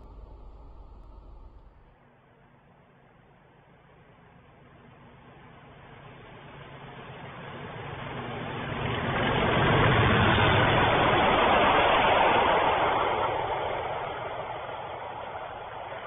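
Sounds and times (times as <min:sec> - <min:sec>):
diesel locomotives passing: 0:05.3 - 0:16.0.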